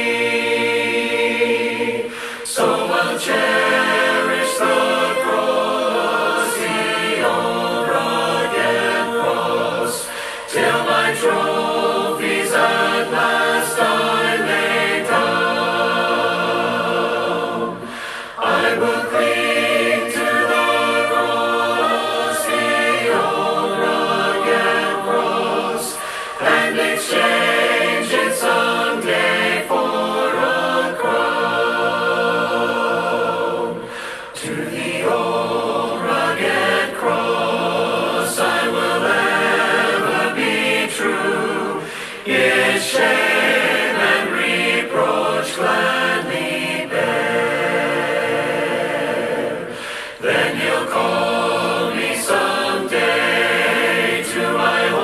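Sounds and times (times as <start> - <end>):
group singing a hymn a cappella: 0.0 - 55.0.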